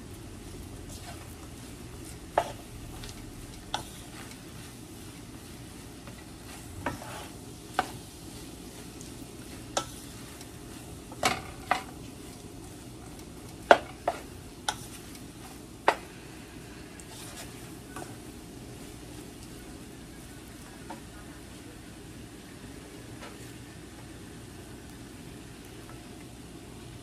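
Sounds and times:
rice sizzling in a pan: 0.0 - 27.0
spatula knocking against pan: 13.6 - 14.8.

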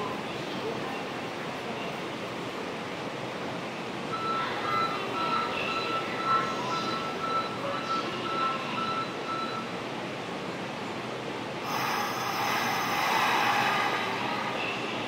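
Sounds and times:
loud steady hiss: 11.6 - 15.0.

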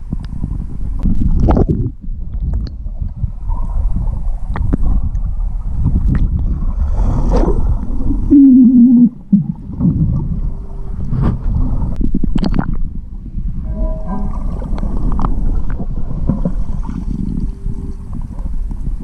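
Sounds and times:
muffled underwater water churning: 0.0 - 19.0
loud wavering tone: 8.0 - 12.2, 12.8 - 19.0.

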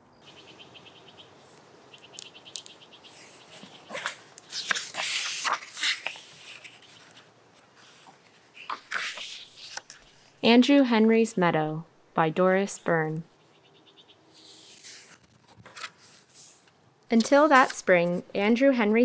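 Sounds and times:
book pages turning: 3.2 - 10.4, 14.4 - 17.8.

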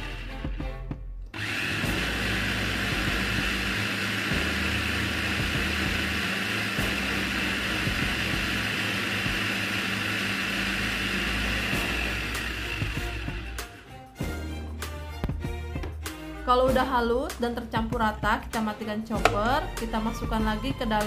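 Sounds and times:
electric food chopper motor running: 0.0 - 0.6, 1.3 - 14.0.

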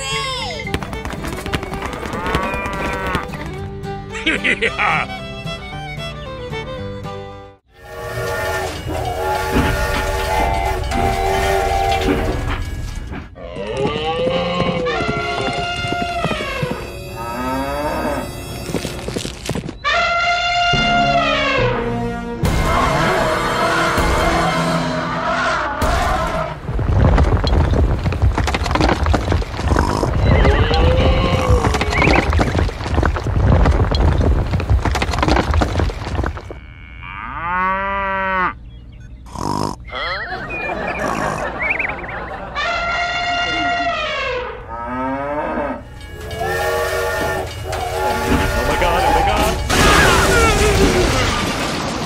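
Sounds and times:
background music: 0.0 - 13.1, 15.2 - 26.6
toy train whistle: 7.8 - 12.2, 46.2 - 49.4
dense crackling and clicking: 26.6 - 36.5
cartoon animal calls: 39.7 - 44.5.

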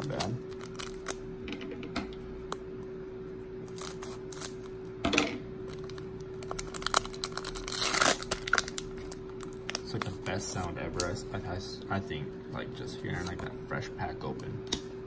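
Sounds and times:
foil pack tearing open: 0.0 - 1.2, 3.7 - 4.7, 5.7 - 10.5
foil wrapper crinkling: 0.0 - 1.2, 3.7 - 4.7, 5.7 - 11.1.

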